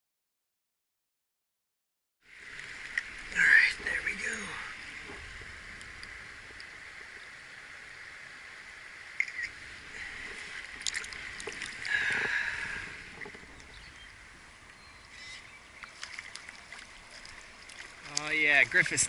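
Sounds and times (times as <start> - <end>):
stream rushing: 2.2 - 19.0.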